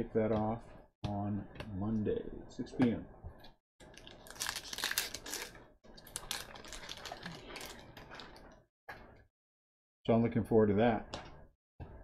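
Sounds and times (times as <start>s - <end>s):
wrapper crinkling and tearing: 3.8s - 8.4s.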